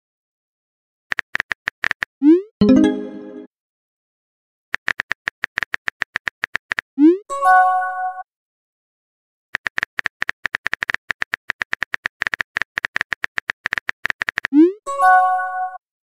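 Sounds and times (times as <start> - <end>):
keyboard typing clicks: 1.1 - 3.1, 4.8 - 6.9, 9.6 - 14.6.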